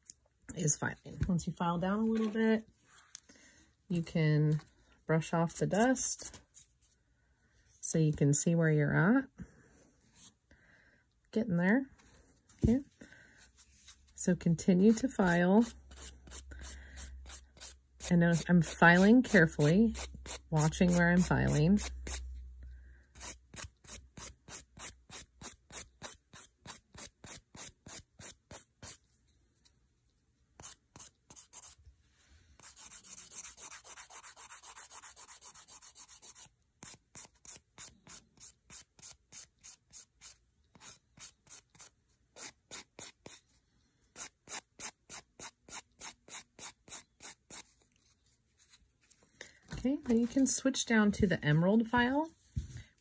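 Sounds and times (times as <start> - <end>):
nail file rasping: 32.6 - 43.4.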